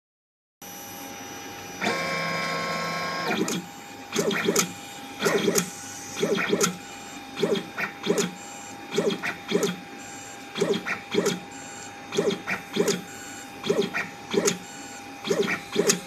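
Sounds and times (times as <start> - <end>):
robot motor whine: 1.7 - 16.0
short motor whines with clicks: 1.8 - 6.8, 7.4 - 9.8, 10.5 - 11.5, 12.1 - 14.6, 15.2 - 16.0.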